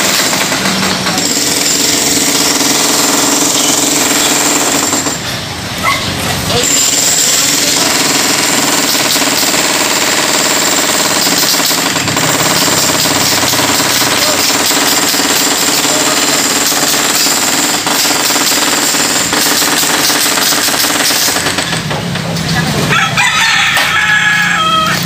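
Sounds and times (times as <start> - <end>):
jackhammer breaking concrete: 0.0 - 5.5, 6.4 - 22.6.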